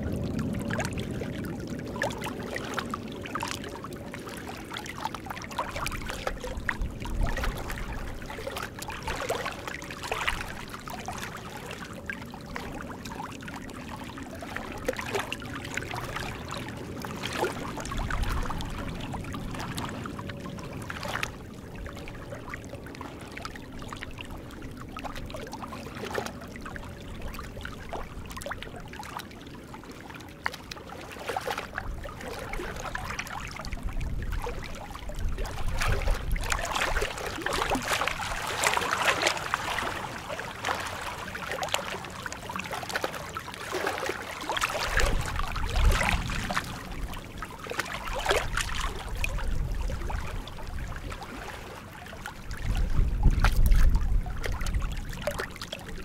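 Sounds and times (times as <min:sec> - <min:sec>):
wind rumble on microphone: 0:00.0 - 0:56.0
small waves lapping on rocks: 0:14.2 - 0:20.1, 0:25.0 - 0:56.0.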